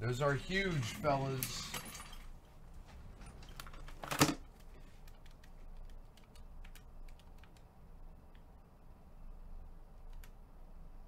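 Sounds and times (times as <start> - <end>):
light irregular clicks: 4.5 - 8.5, 10.0 - 10.4.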